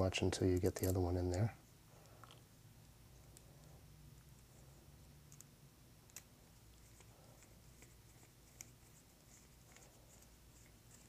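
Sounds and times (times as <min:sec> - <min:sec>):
low steady hum: 0:00.0 - 0:11.0.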